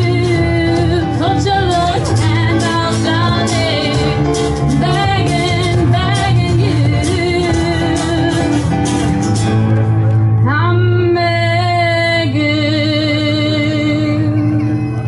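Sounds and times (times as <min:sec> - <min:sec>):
woman singing: 0:00.0 - 0:08.9, 0:10.4 - 0:15.0
cajon percussion: 0:00.0 - 0:10.7
acoustic guitar: 0:00.0 - 0:15.0
bass guitar: 0:00.0 - 0:15.0
piano: 0:00.0 - 0:15.0.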